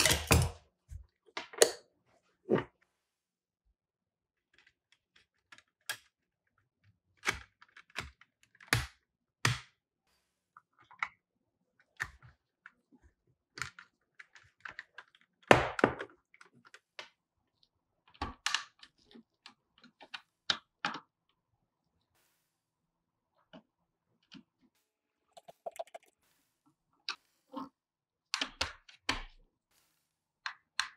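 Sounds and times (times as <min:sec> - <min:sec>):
toy parts clicking and knocking: 0:00.0 - 0:00.6, 0:07.2 - 0:09.7, 0:28.3 - 0:29.3.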